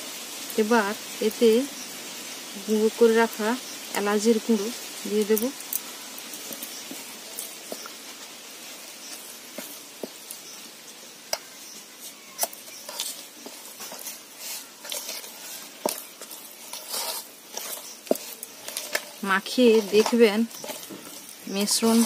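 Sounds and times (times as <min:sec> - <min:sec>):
steady hiss: 0:00.0 - 0:22.0
wet batter stirring: 0:05.2 - 0:22.0.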